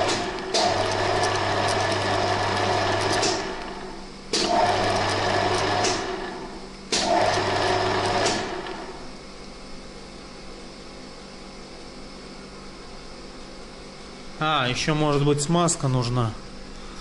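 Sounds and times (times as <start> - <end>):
lathe motor running: 0.0 - 9.1
faint steady hum: 7.7 - 17.0.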